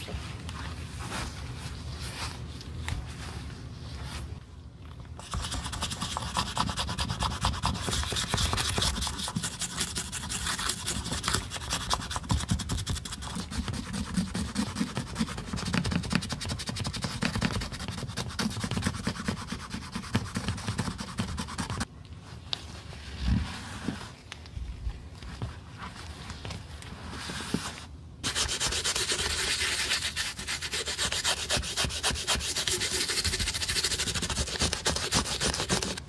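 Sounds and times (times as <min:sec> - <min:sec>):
toothbrush scrubbing leather: 0:28.2 - 0:36.0.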